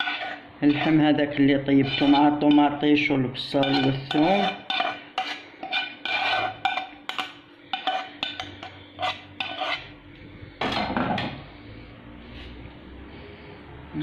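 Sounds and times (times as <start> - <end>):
metal spoon clinking on dishes: 3.6 - 9.8.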